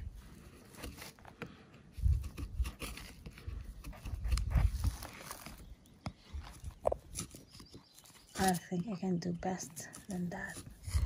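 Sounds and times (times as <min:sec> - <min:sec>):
knife scraping wood: 0:00.4 - 0:05.6, 0:06.9 - 0:08.7.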